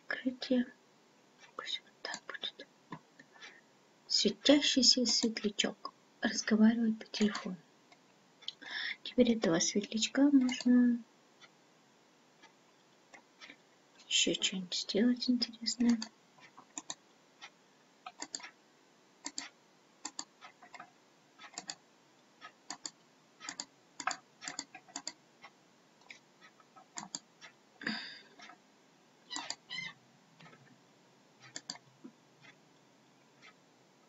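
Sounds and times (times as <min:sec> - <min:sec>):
computer mouse clicking: 0:09.8 - 0:10.7, 0:15.9 - 0:18.6, 0:19.2 - 0:21.8, 0:22.4 - 0:25.2, 0:26.0 - 0:27.6, 0:29.3 - 0:29.6, 0:31.4 - 0:32.6.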